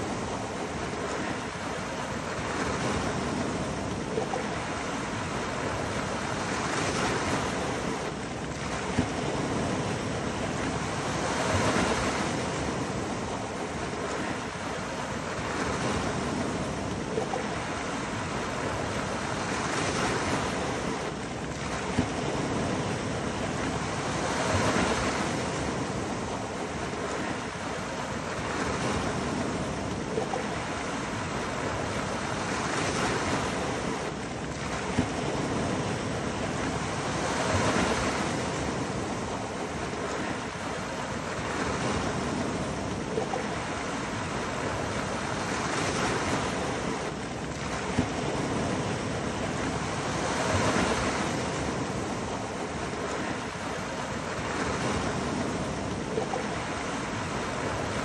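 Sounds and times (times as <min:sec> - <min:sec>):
waves washing over rocks: 0:00.0 - 0:58.0.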